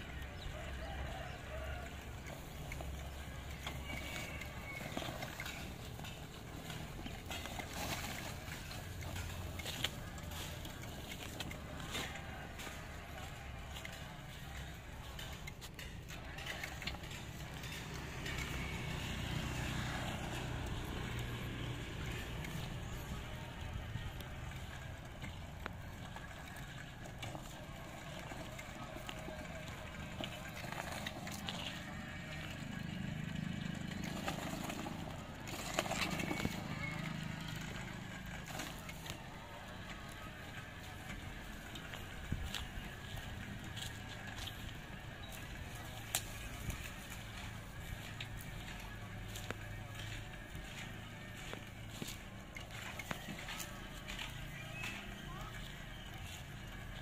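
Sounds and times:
leaves and twigs crackling: 33.4 - 57.0.

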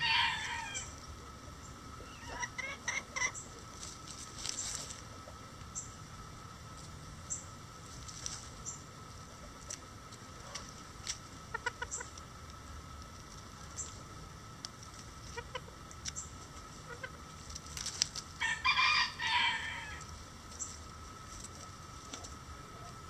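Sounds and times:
rooster crowing: 0.0 - 1.0, 18.4 - 20.1
chickens clucking softly: 0.0 - 6.0, 8.4 - 12.4, 13.1 - 18.0.

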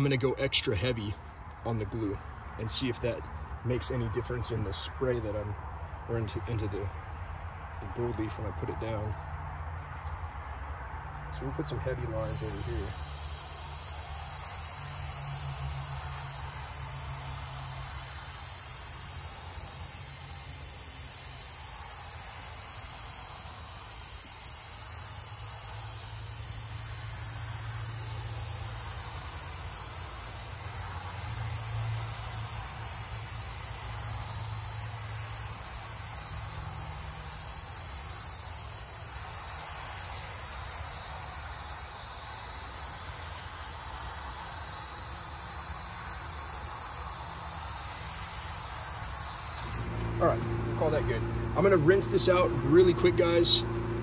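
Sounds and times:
spray gun hissing: 11.2 - 50.0.

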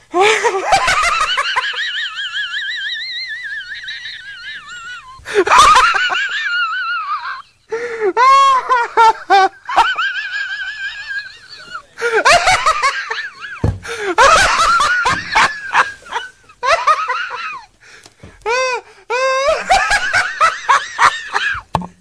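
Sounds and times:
man laughing hysterically: 0.1 - 17.7, 18.4 - 21.6.

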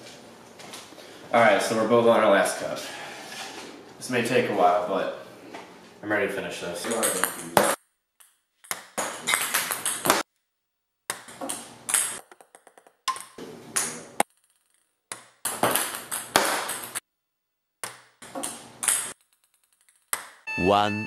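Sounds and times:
ping-pong balls bouncing on a table: 6.8 - 10.2, 11.1 - 17.0, 17.8 - 20.5.

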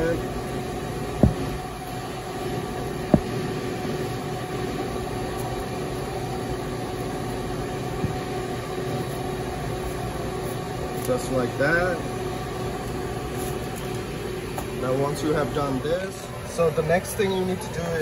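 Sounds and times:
kitchen equipment humming: 0.0 - 18.0
dull thump: 1.2 - 1.6, 3.1 - 3.4.

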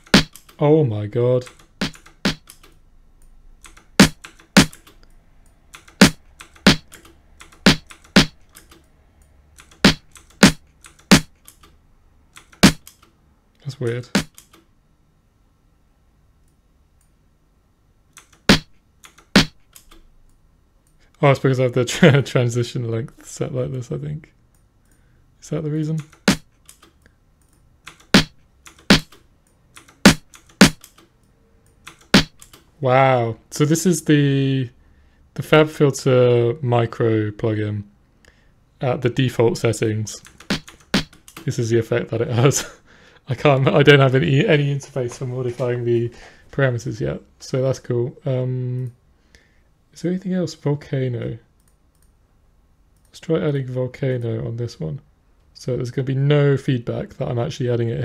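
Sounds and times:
sharp percussive drum hits: 9.8 - 11.3
faint small clicks: 51.6 - 52.2, 53.0 - 53.2.

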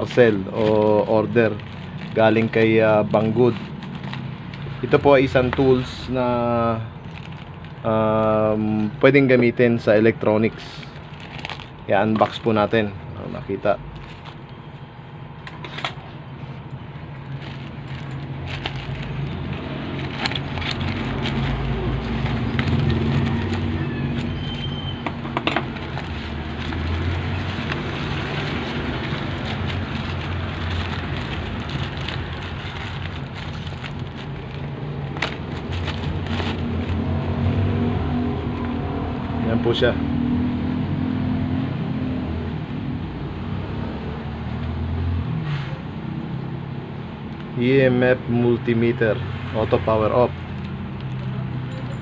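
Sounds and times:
plastic mailer tearing and crinkling: 0.0 - 8.7, 10.8 - 14.8, 17.0 - 39.5.

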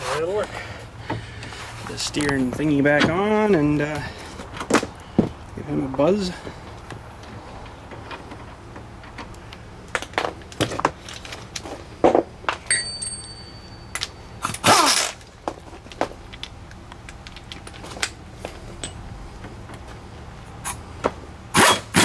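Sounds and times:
metal tools clinking: 12.5 - 16.5
impact wrench whirring: 14.5 - 15.2, 21.5 - 22.0.

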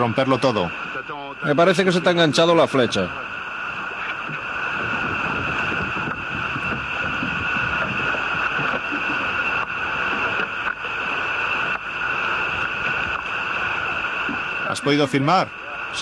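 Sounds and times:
steady drone: 0.0 - 16.0
water against inflatable boat: 0.0 - 16.0
wind on microphone: 3.6 - 14.6.

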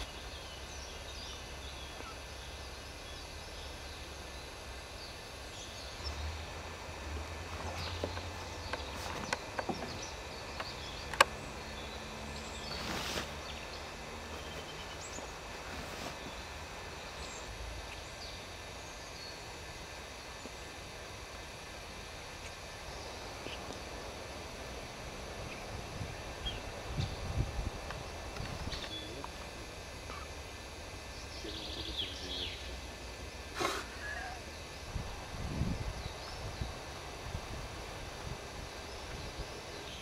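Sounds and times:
faint bird chirps: 0.0 - 6.2, 30.0 - 30.4, 33.8 - 34.7
steady low rumble: 13.6 - 33.5
hiss: 31.4 - 40.0.

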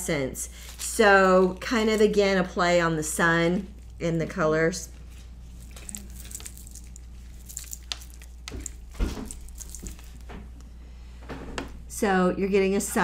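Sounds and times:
low electrical hum: 0.0 - 13.0
packet crinkling and clicking: 5.2 - 10.7.

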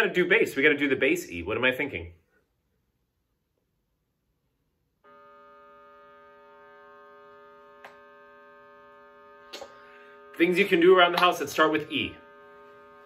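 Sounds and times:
click: 7.8 - 8.0.

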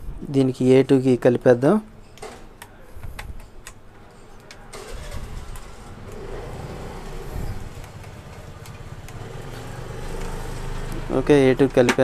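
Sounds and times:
vehicle engine running: 4.8 - 11.8.

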